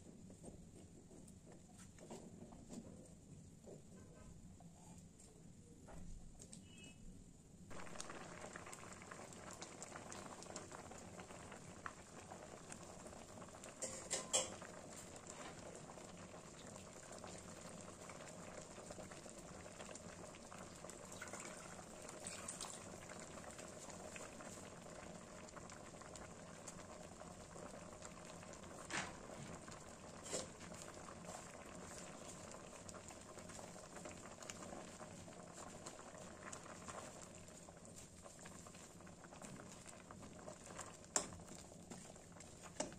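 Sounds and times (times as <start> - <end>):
pot bubbling: 7.7 - 42.9.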